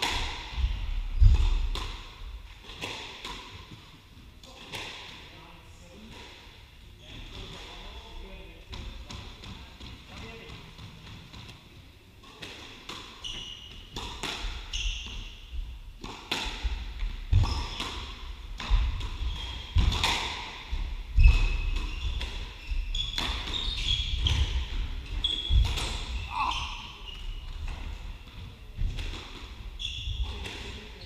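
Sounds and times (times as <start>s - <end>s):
racket hitting ball: 0.0s - 3.6s, 13.9s - 14.7s, 16.0s - 22.6s
shoes squeaking on wooden floor: 13.2s - 13.9s, 14.6s - 15.3s, 17.3s - 17.9s, 19.2s - 20.0s, 21.1s - 27.8s, 29.7s - 31.0s
ball hitting court walls: 16.0s - 26.3s.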